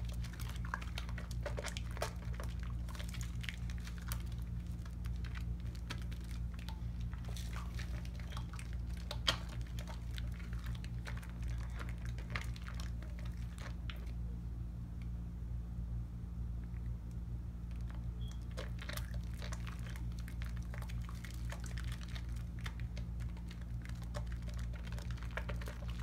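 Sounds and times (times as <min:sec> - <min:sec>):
lathered hands rubbing soap: 0:00.0 - 0:14.0.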